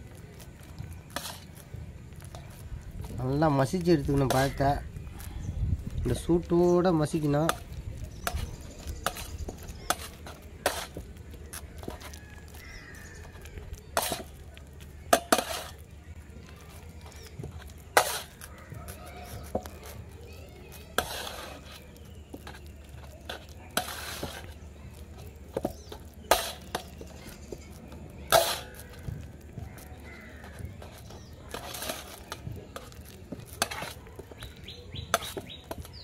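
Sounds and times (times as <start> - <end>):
spatula scraping plate: 8.2 - 12.2, 12.9 - 14.3, 15.1 - 15.8, 17.6 - 18.5, 20.9 - 24.6, 25.6 - 29.1, 30.3 - 34.4, 35.1 - 35.9.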